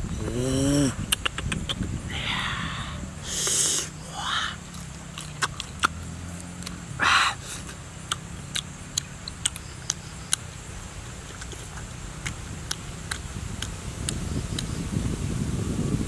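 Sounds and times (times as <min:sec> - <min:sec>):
person chewing with lip smacks: 0:01.1 - 0:01.9, 0:04.7 - 0:06.8, 0:07.6 - 0:10.4, 0:11.2 - 0:14.7
hiss of breath: 0:02.1 - 0:04.5.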